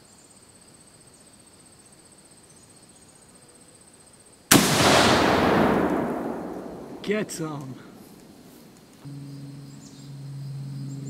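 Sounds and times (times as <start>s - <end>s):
rifle shot with echo: 4.5s - 8.6s.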